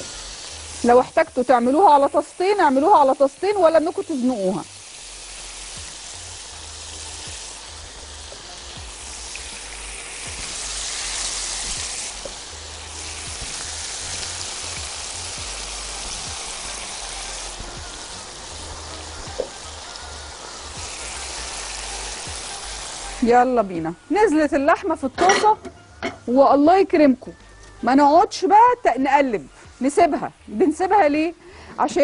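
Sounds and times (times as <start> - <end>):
beef sizzling in frying pan: 0.0 - 25.6.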